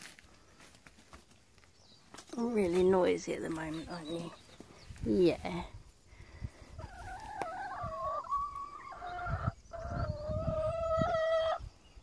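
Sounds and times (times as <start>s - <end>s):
hen calling: 6.8s - 11.7s.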